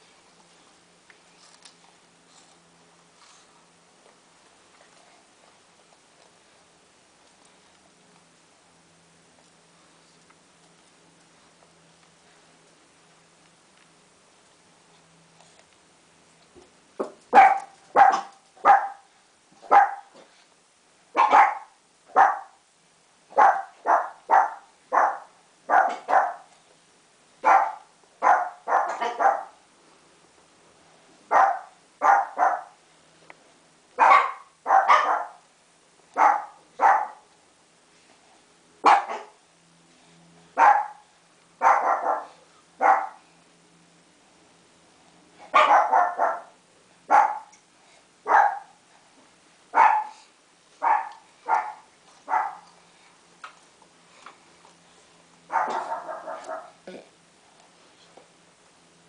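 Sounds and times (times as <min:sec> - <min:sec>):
dog barking: 0:17.3 - 0:19.1, 0:19.7 - 0:20.1, 0:21.2 - 0:22.6, 0:23.3 - 0:26.5, 0:27.4 - 0:29.6, 0:31.3 - 0:32.8, 0:34.0 - 0:35.4, 0:36.2 - 0:37.2, 0:38.8 - 0:39.4, 0:40.6 - 0:41.0, 0:41.6 - 0:43.2, 0:45.5 - 0:47.5, 0:48.3 - 0:48.8, 0:49.7 - 0:52.7, 0:55.5 - 0:56.8.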